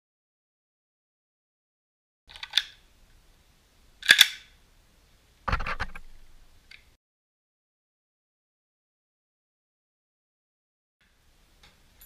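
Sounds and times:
clicking and knocking: 0:05.5 - 0:06.1.

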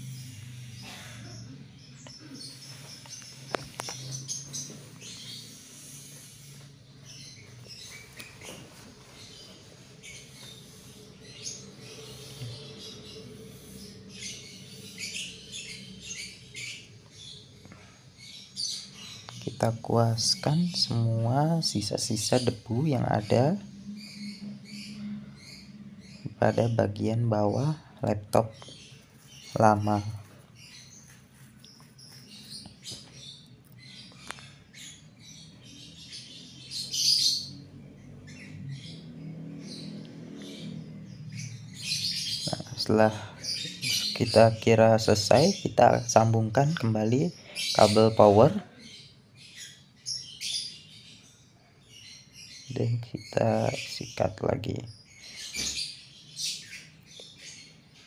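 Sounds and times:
paintbrush scrubbing laptop fan: 0:07.7 - 0:15.2.

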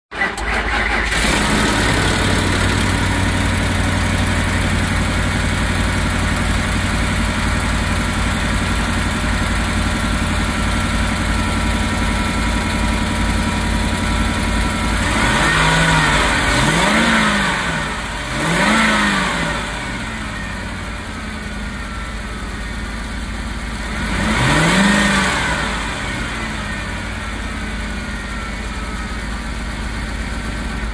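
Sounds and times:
truck engine idling: 0:00.1 - 0:18.7, 0:19.5 - 0:24.8, 0:25.6 - 0:30.9
engine revving: 0:00.3 - 0:20.6, 0:23.9 - 0:27.4.

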